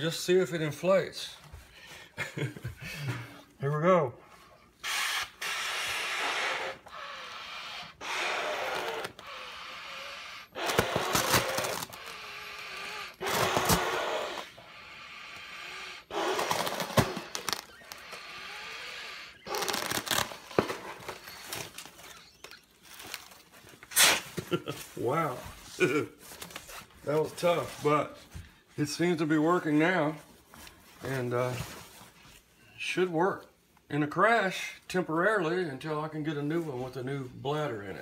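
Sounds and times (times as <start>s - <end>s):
man blowing into air bladder: 4.8s - 15.4s, 23.9s - 24.4s.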